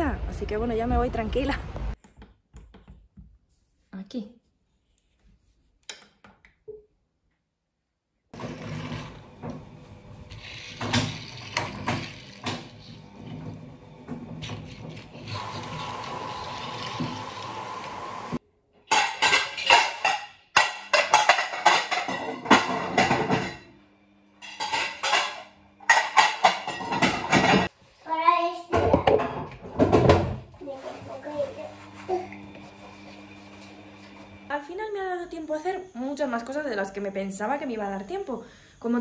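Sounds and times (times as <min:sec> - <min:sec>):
dishes and cutlery clinking: 0:18.9 - 0:23.7, 0:24.4 - 0:27.7.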